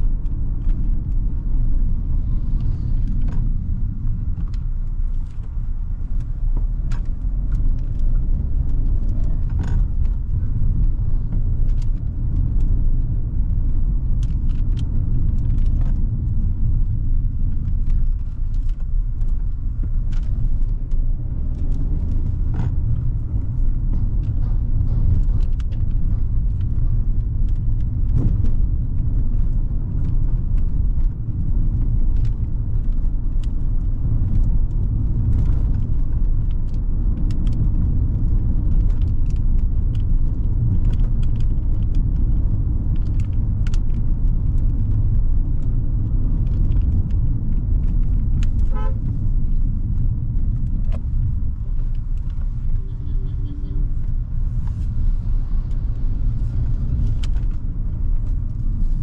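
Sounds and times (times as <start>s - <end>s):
car engine and tyres rumbling: 0.0s - 59.0s.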